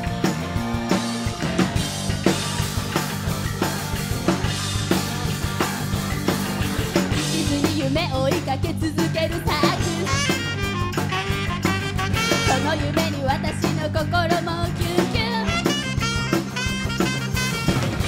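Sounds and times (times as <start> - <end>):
live rock band playing: 0.0 - 18.0
steady drum beat: 0.0 - 18.0
lead melody: 9.6 - 13.1, 15.2 - 18.0.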